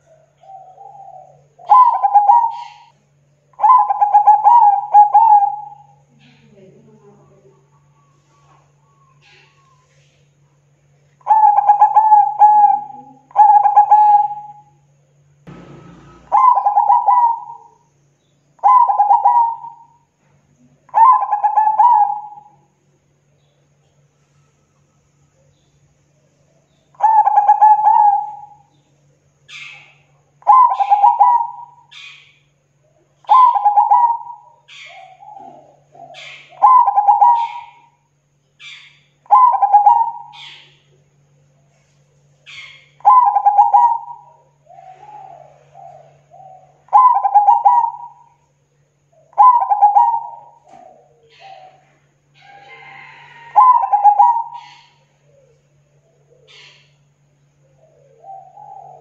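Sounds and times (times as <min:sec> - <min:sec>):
dove cooing: 0:00.0 - 0:06.6, 0:11.2 - 0:14.8, 0:15.5 - 0:17.8, 0:18.6 - 0:20.0, 0:20.8 - 0:22.7, 0:26.9 - 0:28.7, 0:29.5 - 0:32.2, 0:32.8 - 0:38.1, 0:39.3 - 0:41.9, 0:42.5 - 0:59.0
faint high chirping: 0:00.0 - 0:59.0.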